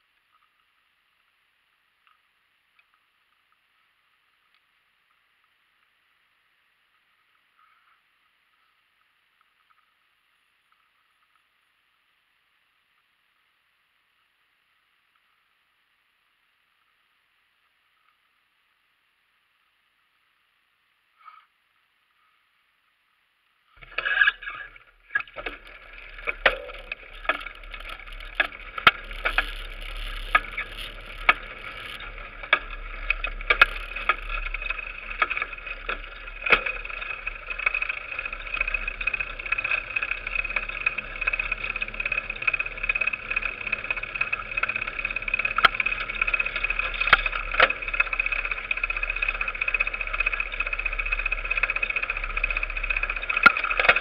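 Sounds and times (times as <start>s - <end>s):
bike clicking and knocking over bumps: 23.8s - 54.0s
bike tyres and drivetrain whirring: 23.8s - 54.0s.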